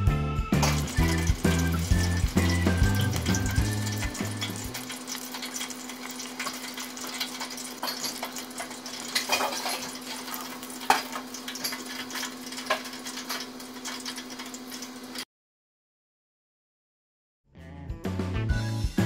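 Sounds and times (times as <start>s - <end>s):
hot oil sizzling in a deep fryer: 0.5s - 15.3s.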